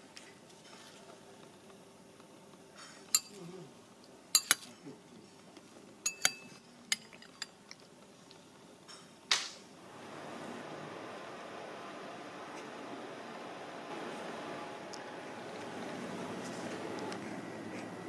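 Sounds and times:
room noise hiss: 0.0s - 18.0s
cutlery clinking against ceramic bowl: 3.1s - 3.4s, 4.4s - 4.7s, 6.0s - 7.6s.

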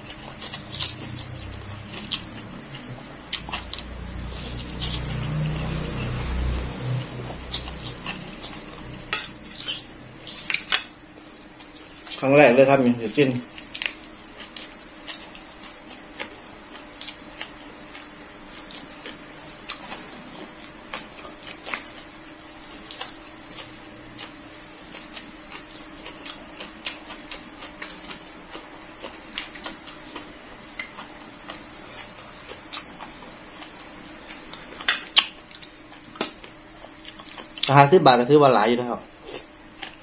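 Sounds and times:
crickets trilling: 0.0s - 40.0s
chewing clicks: 34.5s - 37.8s.

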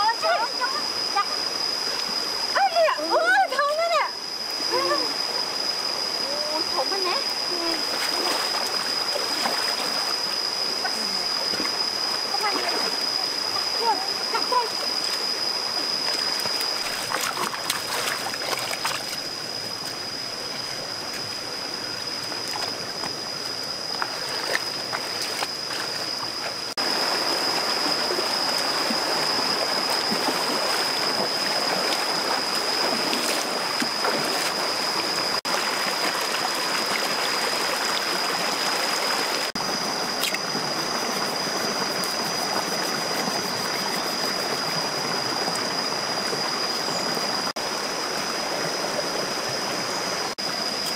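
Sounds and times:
stream rushing over rocks: 0.0s - 50.9s
splashes of wading feet: 7.7s - 10.1s, 16.0s - 19.3s, 29.8s - 39.2s.

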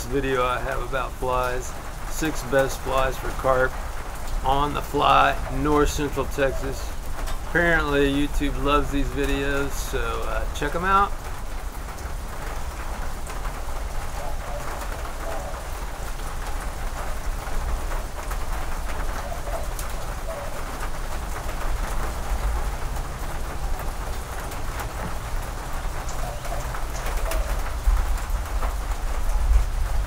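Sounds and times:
rain on a metal roof: 0.0s - 30.0s
water drips ticking: 0.0s - 30.0s
bird calling: 4.5s - 7.1s, 14.1s - 16.6s, 18.8s - 21.0s, 26.0s - 27.9s.

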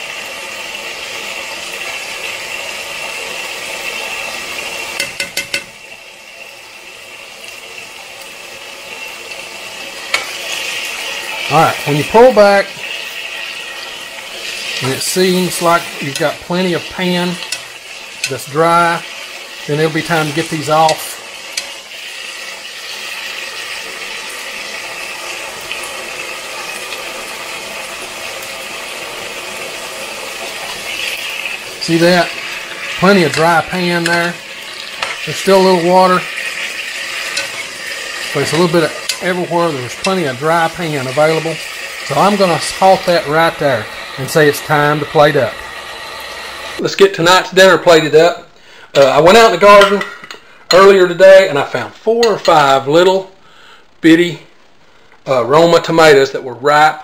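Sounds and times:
beans sizzling in a pan: 0.0s - 57.0s
metal spatula clicking on pan: 5.0s - 5.7s.

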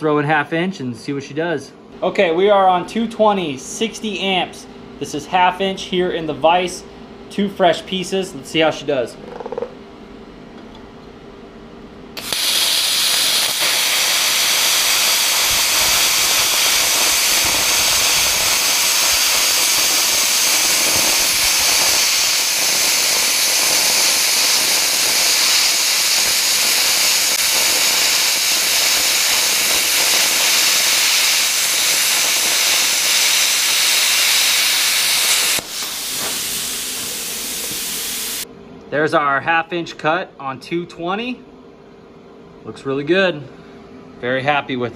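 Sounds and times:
plasma cutter hissing: 12.2s - 38.4s.

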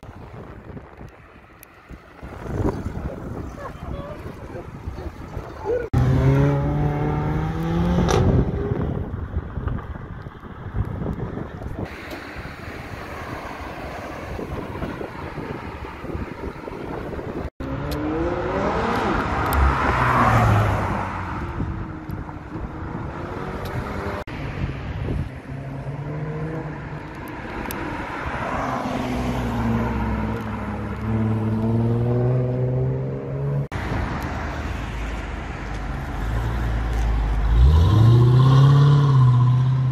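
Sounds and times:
sports car engines revving: 2.1s - 9.8s, 14.4s - 24.3s, 25.4s - 33.8s, 35.7s - 39.9s.

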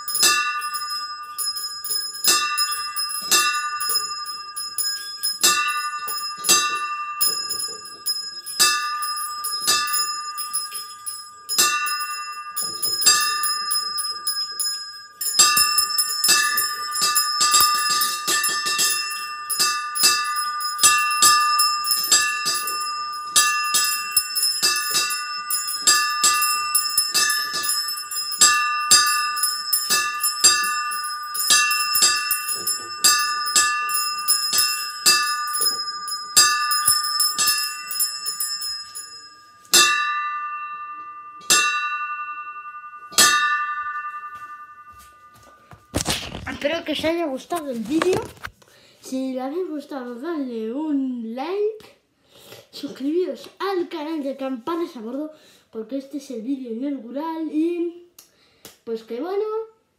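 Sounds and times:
small brass bells pealing: 0.0s - 46.4s.

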